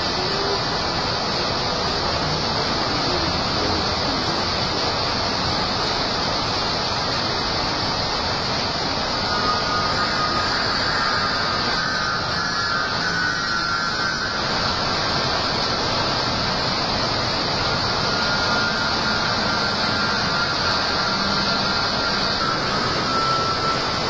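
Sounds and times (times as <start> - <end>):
traffic and bus engines rumbling: 0.0 - 9.4
heavy rain falling: 0.0 - 24.0.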